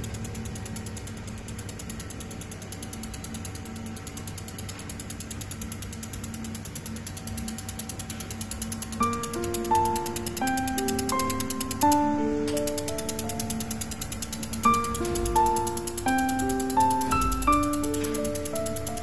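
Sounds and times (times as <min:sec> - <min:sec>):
laser welder ticking: 0:00.0 - 0:19.0
music with stepping melody: 0:08.9 - 0:19.0.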